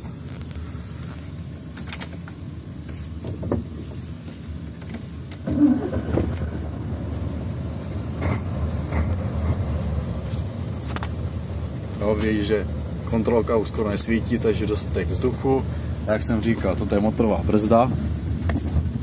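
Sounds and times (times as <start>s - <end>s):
diesel truck engine starting: 4.5s - 19.0s
ignition clicks: 4.8s - 6.5s.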